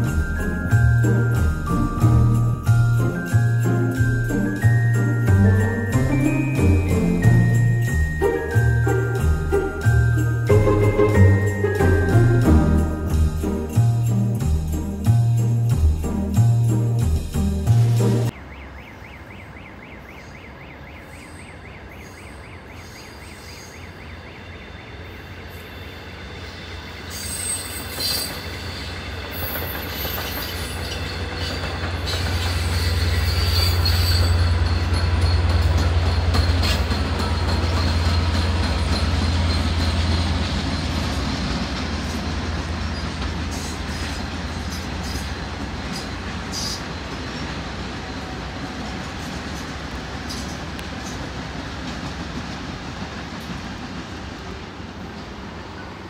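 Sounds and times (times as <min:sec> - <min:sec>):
diesel passenger train passing: 0:00.0 - 0:56.0
high wheel squeal: 0:22.0 - 0:47.6.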